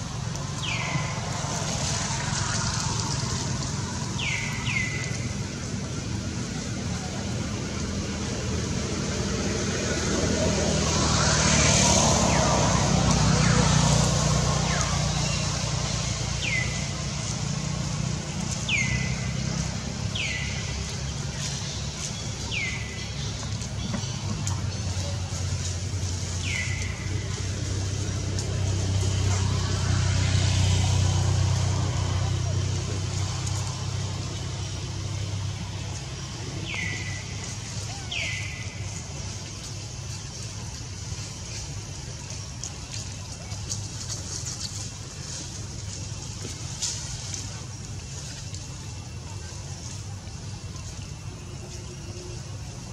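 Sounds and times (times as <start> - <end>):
low motor rumble: 0.0 - 52.9.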